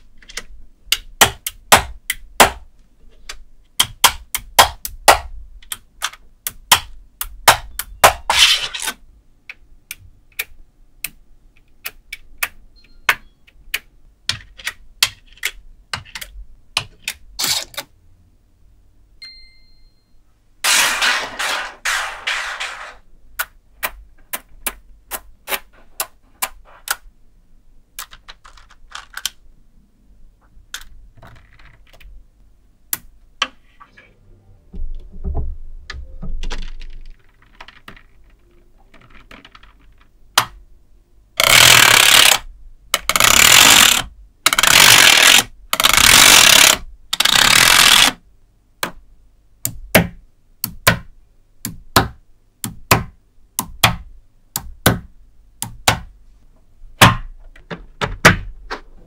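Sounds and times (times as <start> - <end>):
magnet balls rattling: 36.4 - 40.1.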